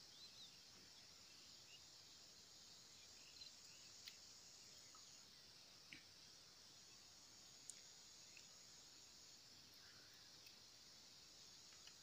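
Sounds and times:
faint high hiss: 0.0s - 12.0s
faint small clicks: 4.0s - 4.3s, 7.6s - 8.6s, 10.4s - 10.6s, 11.6s - 12.0s.

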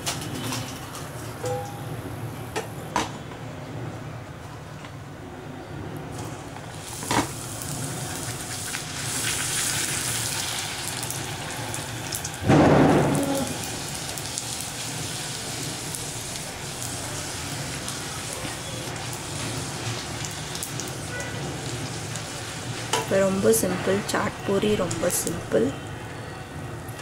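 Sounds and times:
food sizzling in hot oil: 6.1s - 25.7s.

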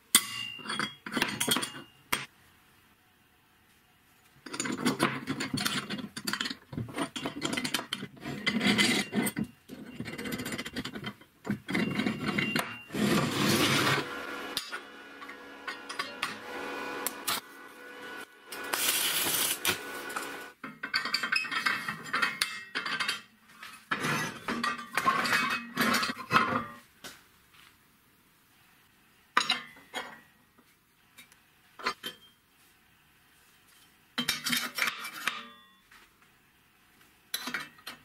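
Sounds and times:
metal scraping on metal: 4.5s - 20.6s, 21.3s - 26.8s.

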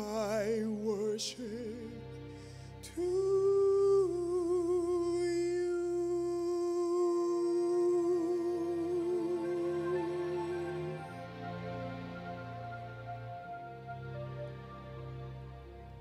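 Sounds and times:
man singing a long note: 0.0s - 2.1s, 2.8s - 11.6s
soft sustained accompaniment: 0.0s - 16.0s.

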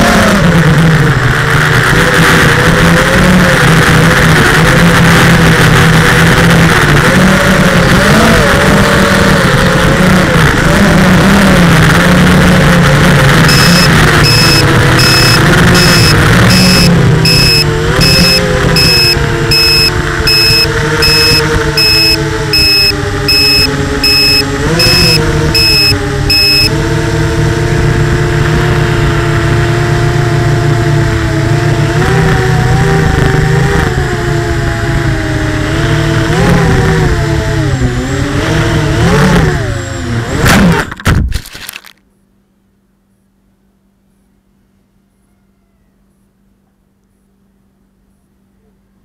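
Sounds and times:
faint hum: 13.4s - 26.7s, 42.1s - 49.0s
quadcopter motors whining: 13.4s - 26.8s
high beep: 13.5s - 26.7s.

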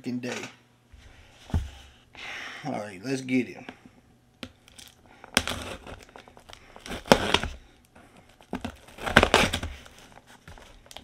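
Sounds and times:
packing tape tearing: 4.6s - 7.6s, 8.3s - 11.0s.

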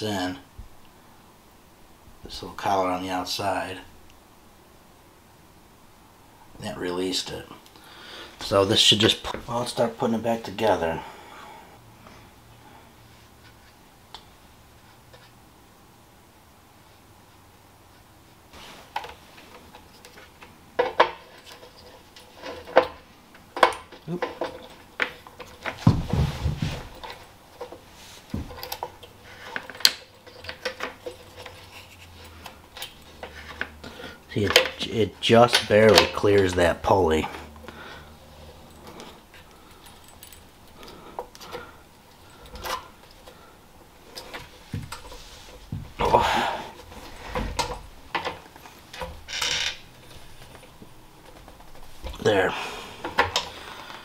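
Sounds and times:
metal parts clinking and knocking: 19.0s - 26.2s, 26.9s - 33.7s, 38.5s - 43.4s, 47.1s - 52.3s.

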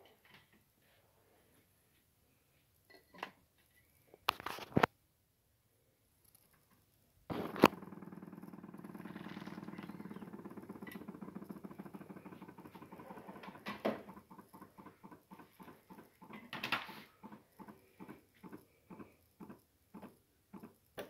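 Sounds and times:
vacuum pump pulsing buzz: 7.3s - 16.4s.

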